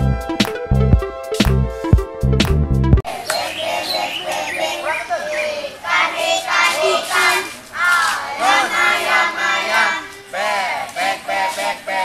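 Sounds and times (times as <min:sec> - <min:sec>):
children chanting in unison: 0:03.1 - 0:12.0.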